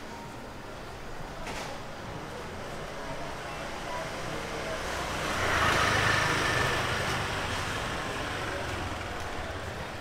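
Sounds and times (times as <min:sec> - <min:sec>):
motor scooter engine passing: 0:04.8 - 0:09.9.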